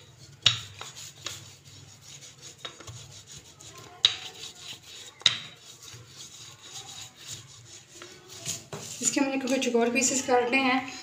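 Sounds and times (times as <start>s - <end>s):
rolling pin scraping on dough: 0.0s - 11.0s
rolling pin knocking on surface: 0.4s - 1.4s, 4.0s - 4.4s, 5.2s - 5.6s.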